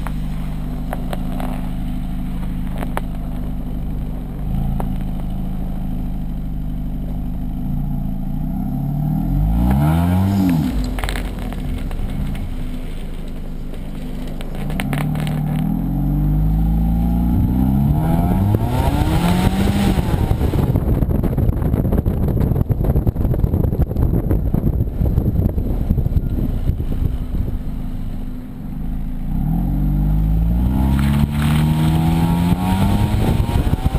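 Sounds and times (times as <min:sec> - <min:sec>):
car engine revving: 0:00.0 - 0:21.7, 0:24.9 - 0:33.9
wind rushing over microphone: 0:17.2 - 0:28.1, 0:30.4 - 0:33.9.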